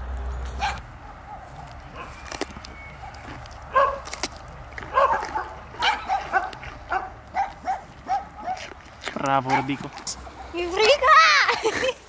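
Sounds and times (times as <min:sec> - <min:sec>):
dog yipping: 0:00.6 - 0:04.1, 0:04.9 - 0:08.7, 0:09.5 - 0:09.8.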